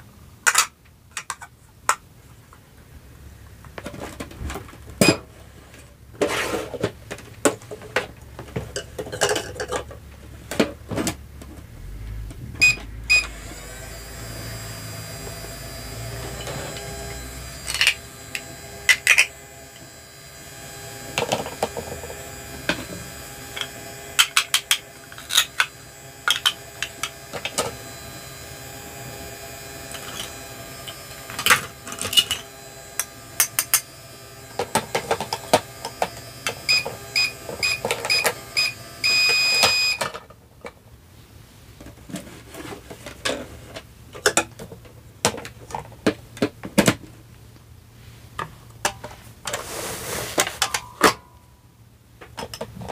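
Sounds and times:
faint steady hum: 0.0s - 52.9s
plastic toys clicking and knocking: 0.4s - 2.1s, 6.7s - 11.2s, 17.7s - 19.3s, 23.6s - 27.7s, 31.3s - 33.9s, 42.9s - 47.1s, 52.2s - 52.9s
toy appliance electronic beeps: 12.6s - 40.2s.

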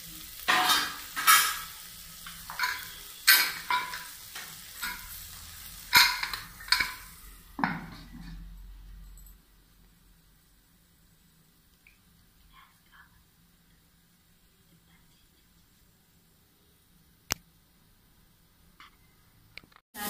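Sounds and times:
food sizzling: 0.0s - 20.0s
spoon clinking against pot: 2.5s - 4.1s.

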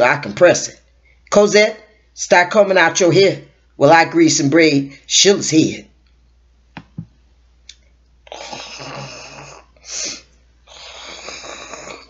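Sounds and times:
child snoring: 8.3s - 12.0s.

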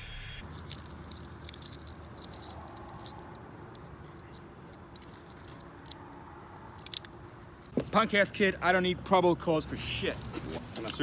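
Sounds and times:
handcuffs clicking shut: 0.4s - 7.7s.

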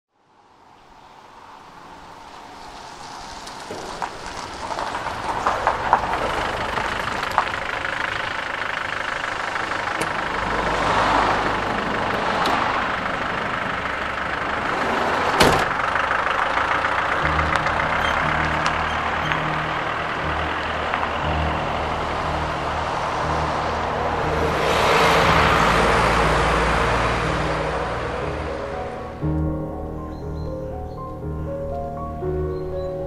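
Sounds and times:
van passing: 0.5s - 33.0s
minibus engine running: 1.6s - 33.0s
low steady engine note: 2.2s - 33.0s.

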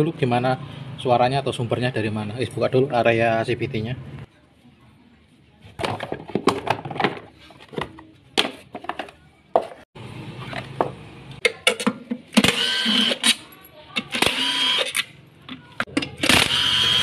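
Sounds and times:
plastic covers clicking and rattling: 5.8s - 9.8s.

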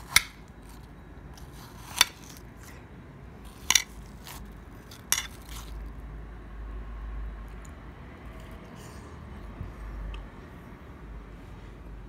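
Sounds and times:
metal spoon scooping watermelon: 0.0s - 2.7s, 3.4s - 5.9s.

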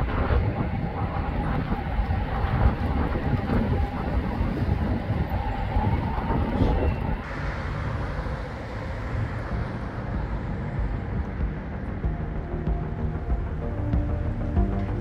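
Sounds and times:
traffic rumble: 0.0s - 15.0s
steady hum: 7.0s - 15.0s.

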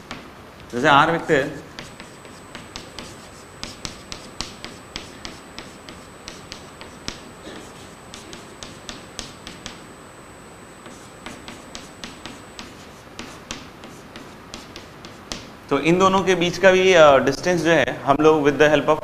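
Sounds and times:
chalk tapping on chalkboard: 0.0s - 0.8s, 1.6s - 9.8s, 10.8s - 15.6s.

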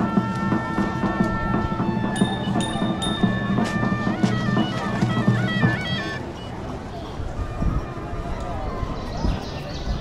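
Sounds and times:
pulsing percussion beat: 0.0s - 6.2s
bell-like held notes: 2.0s - 6.2s.

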